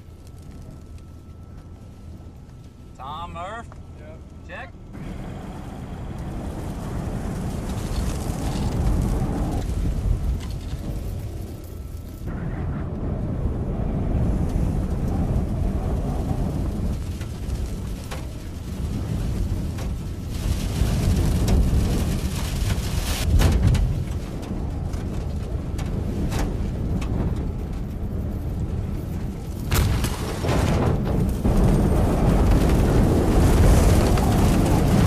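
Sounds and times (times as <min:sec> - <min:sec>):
sharp ticks and cracks: 0:00.0 - 0:01.7
strong wind rumbling in gusts: 0:00.0 - 0:35.0.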